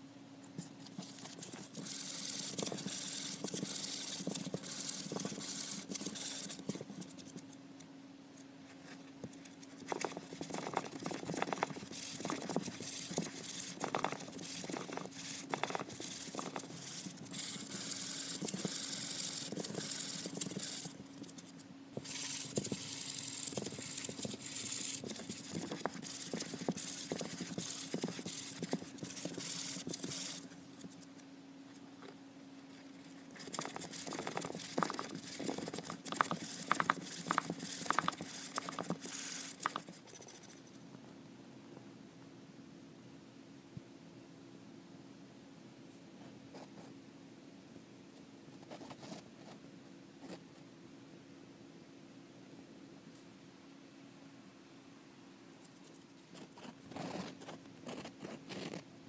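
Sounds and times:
steady low hum: 0:00.0 - 0:59.0
hamster scratching on cardboard: 0:00.6 - 0:07.6, 0:08.8 - 0:31.2, 0:32.8 - 0:40.8, 0:48.6 - 0:49.6, 0:55.6 - 0:58.9.

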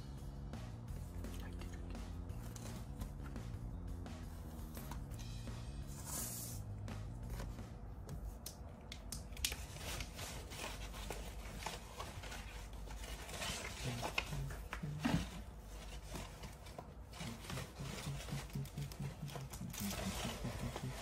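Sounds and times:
paper rustling and sliding: 0:09.6 - 0:18.6, 0:19.3 - 0:21.0
person humming: 0:17.3 - 0:21.0.

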